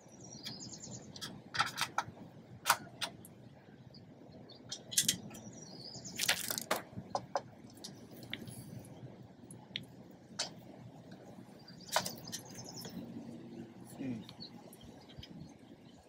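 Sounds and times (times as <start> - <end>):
metal bolts clicking and clinking: 1.2 - 3.2, 4.7 - 5.5.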